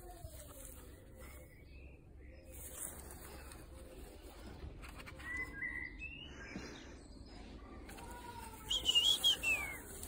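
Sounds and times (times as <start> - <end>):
bird singing whistled notes: 5.2 - 6.5, 8.7 - 10.0.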